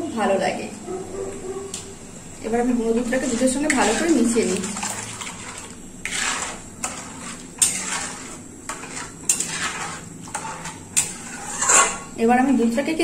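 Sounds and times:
metal spatula scraping pan: 2.9 - 12.2.

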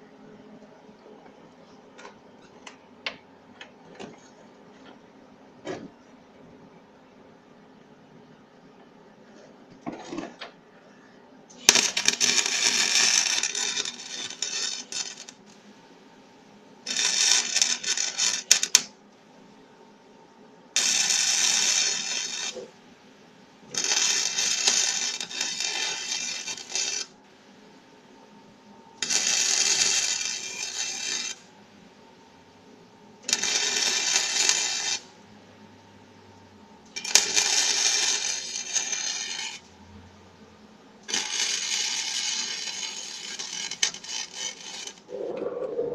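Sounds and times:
arc welder crackling: 11.5 - 15.8, 16.8 - 19.0, 20.8 - 22.8, 23.6 - 27.3, 29.0 - 31.5, 33.2 - 35.2, 35.9 - 40.0, 41.0 - 45.9.

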